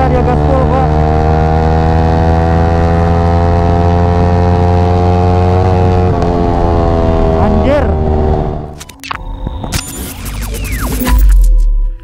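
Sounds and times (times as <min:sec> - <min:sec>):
motorcycle engine at high revs: 0:00.0 - 0:08.8.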